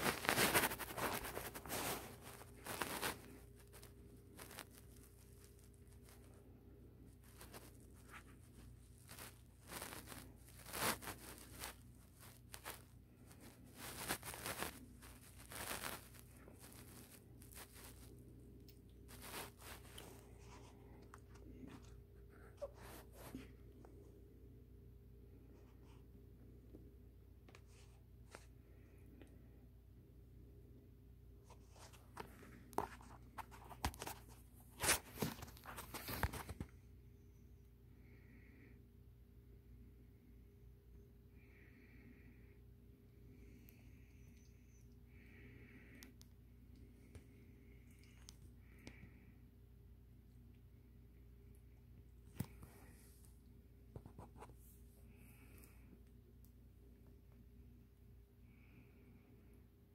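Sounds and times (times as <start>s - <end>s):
kittens clawing at blanket: 0.0s - 24.2s, 31.5s - 36.9s.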